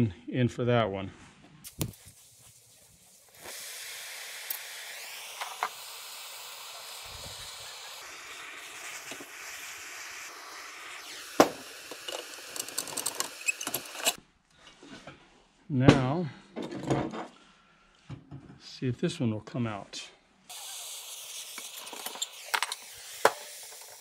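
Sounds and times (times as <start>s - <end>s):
gas torch flame hissing: 1.6s - 14.2s, 20.5s - 24.0s.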